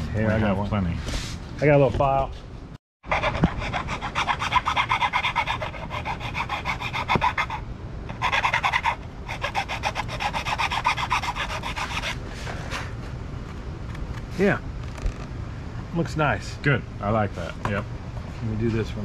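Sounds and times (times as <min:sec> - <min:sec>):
hand file rasping on plastic: 0:03.1 - 0:12.2.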